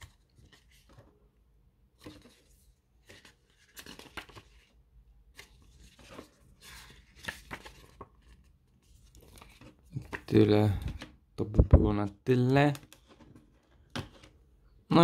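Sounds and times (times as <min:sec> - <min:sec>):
paper pages rustling: 0:00.0 - 0:01.1, 0:02.0 - 0:11.1.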